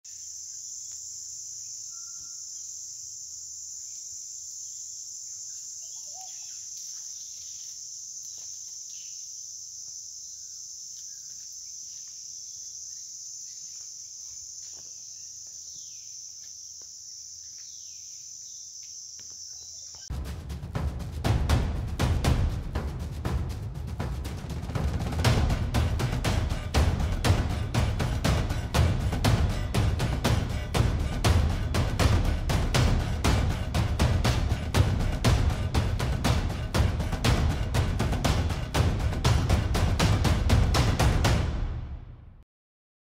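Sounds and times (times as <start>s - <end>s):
faint bird chirps: 0.0s - 20.1s
insects chorus: 0.0s - 41.7s
loud music with drum hits: 20.1s - 42.4s.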